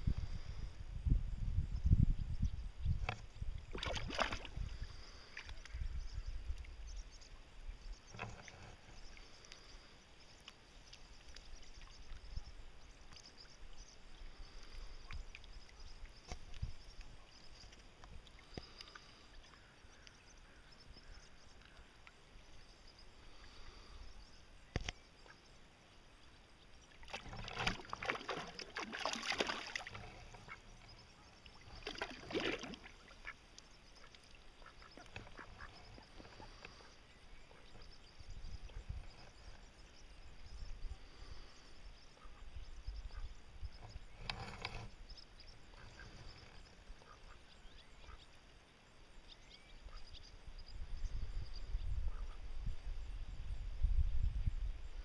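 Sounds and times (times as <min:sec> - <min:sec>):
ducks quacking: 0:34.6 - 0:36.9.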